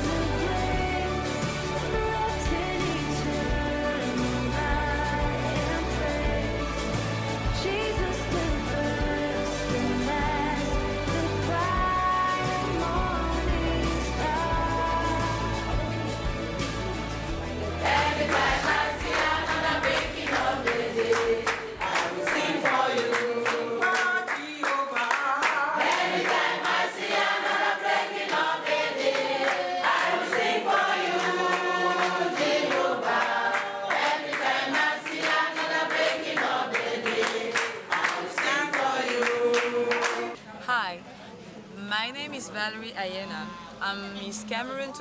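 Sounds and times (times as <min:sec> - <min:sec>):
crowd singing unaccompanied: 0:00.0 - 0:40.4
rhythmic hand-clapping: 0:14.0 - 0:40.4.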